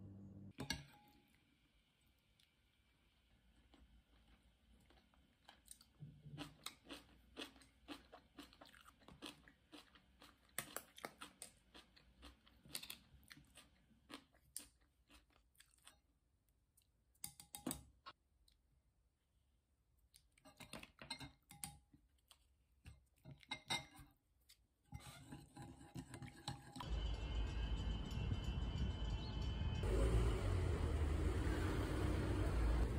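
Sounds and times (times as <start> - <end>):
crunchy chewing: 3.6 - 16.1
music: 26.8 - 30.1
traffic noise: 26.9 - 32.9.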